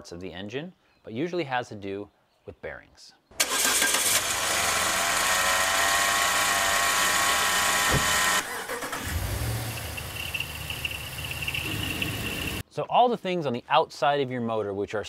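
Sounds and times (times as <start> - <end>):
car engine running: 4.0 - 12.6.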